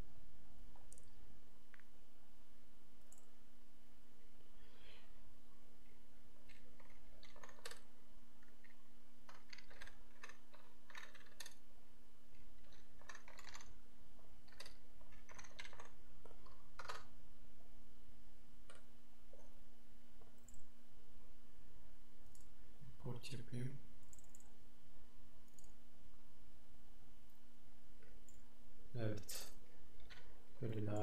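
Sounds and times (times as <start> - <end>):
computer keyboard typing: 6.5 - 7.8, 8.6 - 11.6, 12.6 - 13.8, 14.5 - 17.1.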